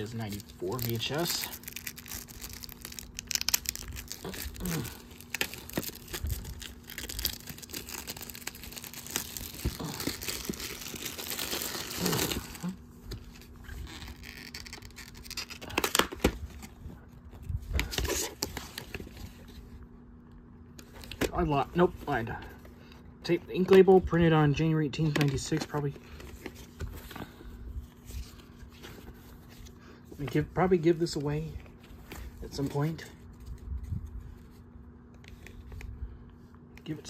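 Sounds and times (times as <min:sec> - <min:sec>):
shrink wrap crinkling and tearing: 0:00.0 - 0:19.7.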